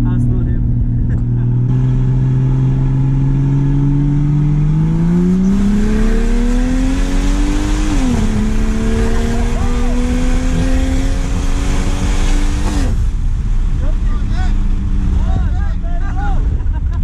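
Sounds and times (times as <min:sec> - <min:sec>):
car engine accelerating: 0:00.0 - 0:17.0.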